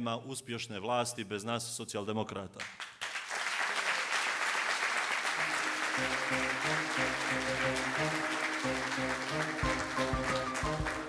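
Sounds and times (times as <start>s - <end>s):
crowd applauding: 2.8s - 11.0s
background music with bass: 6.0s - 11.0s.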